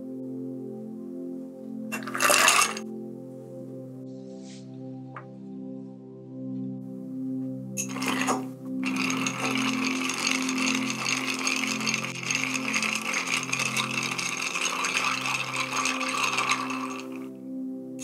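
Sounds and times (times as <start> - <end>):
ice clinking in stirred glass: 1.9 - 2.8, 7.8 - 17.3.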